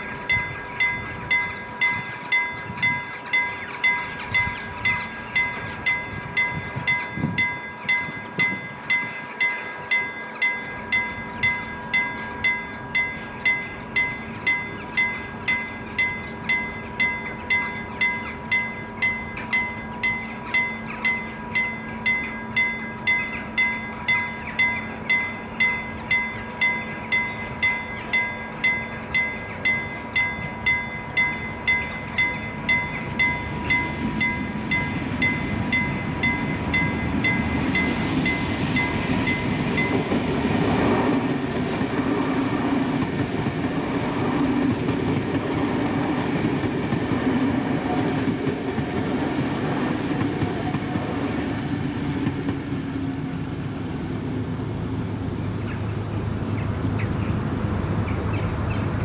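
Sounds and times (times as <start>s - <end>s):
level crossing warning bell: 0.0s - 55.0s
electric train passing: 0.0s - 59.0s.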